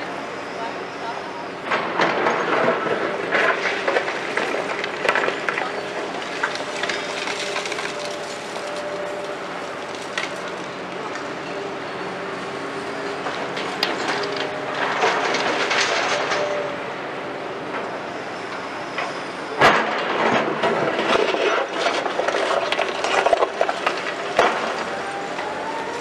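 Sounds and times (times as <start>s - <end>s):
diesel engine hum: 0.0s - 26.0s
concrete rubble clattering into truck bed: 1.7s - 8.0s, 19.6s - 24.9s.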